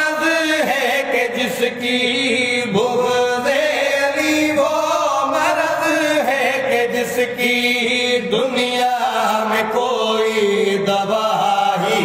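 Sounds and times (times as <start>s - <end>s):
men singing unaccompanied: 0.0s - 12.0s.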